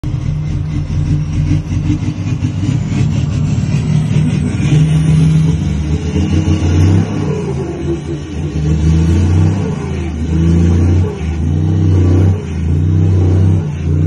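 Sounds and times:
diesel truck engine droning: 0.0 - 14.0.

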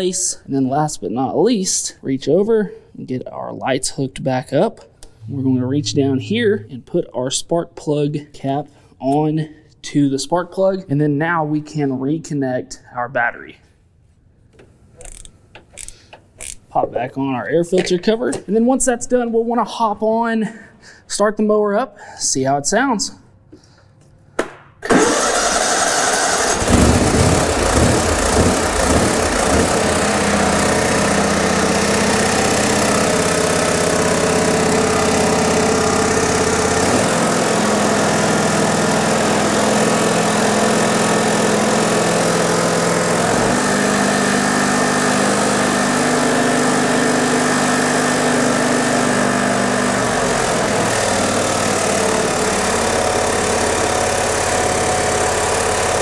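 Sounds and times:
mower rattling: 24.9 - 56.0
riding mower engine running: 24.9 - 56.0.

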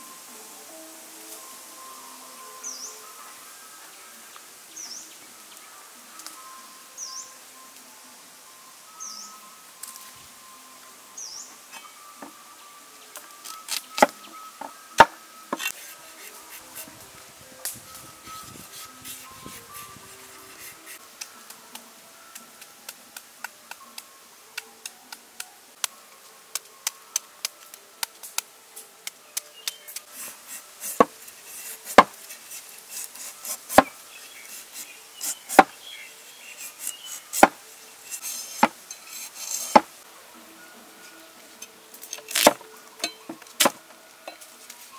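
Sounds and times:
cleaver scraping carrot: 15.6 - 17.1, 17.7 - 21.0, 29.8 - 39.9, 42.1 - 42.6.

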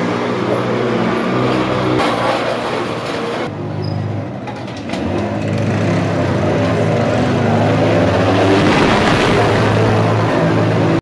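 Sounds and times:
motor scooter engine passing: 4.8 - 11.0.

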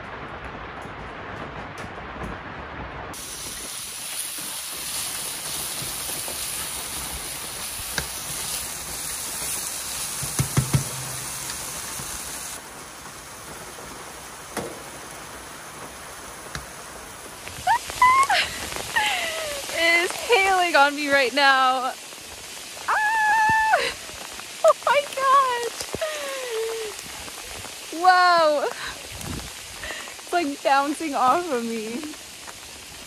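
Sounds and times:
rain: 0.0 - 33.0
storm wind: 0.0 - 33.0.

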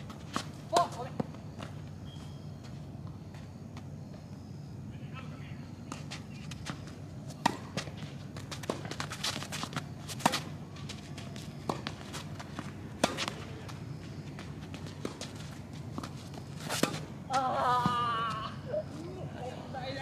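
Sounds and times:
shoes scuffing on court: 0.0 - 4.4, 5.8 - 17.4
steady low hum: 0.0 - 20.0
racket striking tennis ball: 7.3 - 10.6, 13.0 - 13.6, 16.0 - 17.1.

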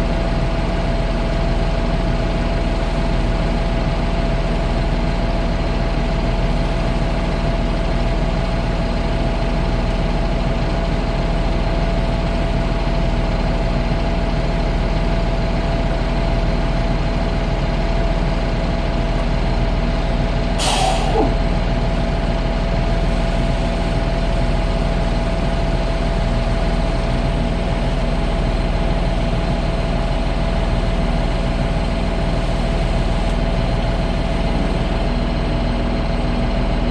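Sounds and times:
pump engine running: 0.0 - 36.9
short sharp hiss: 20.6 - 21.4.

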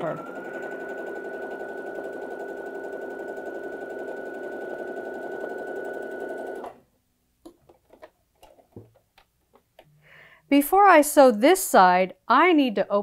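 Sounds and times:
sewing machine stitching: 0.0 - 6.8.

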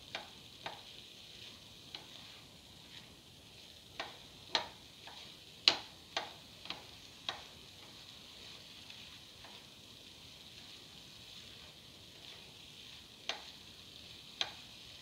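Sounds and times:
paste sizzling: 0.0 - 15.0
spatula knocking against pan: 0.1 - 0.9, 4.0 - 8.0, 13.2 - 13.6, 14.4 - 14.7.

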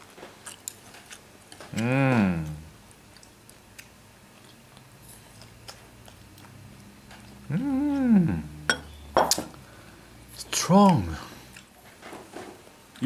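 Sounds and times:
drawn-out vocal sound: 1.7 - 2.8, 7.4 - 9.9.

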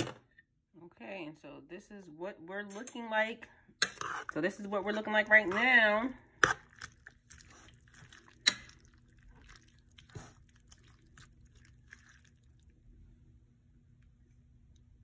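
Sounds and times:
faint steady hum: 0.2 - 15.0
spoon stirring wet stew: 3.8 - 12.7.

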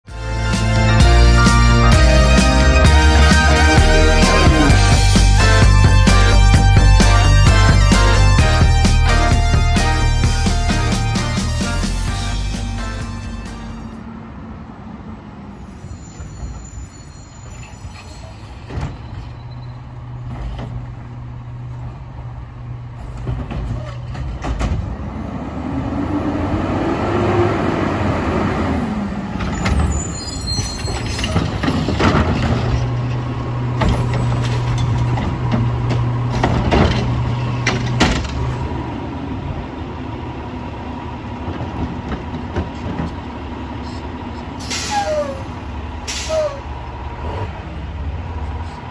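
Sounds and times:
garbage truck diesel engine: 0.0 - 48.9
sharp knocks and bangs: 23.1 - 25.0, 33.7 - 38.6.

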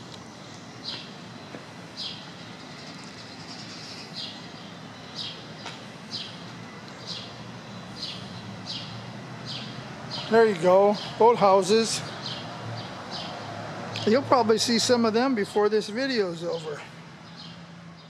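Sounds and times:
small bird chirping: 0.4 - 10.4.

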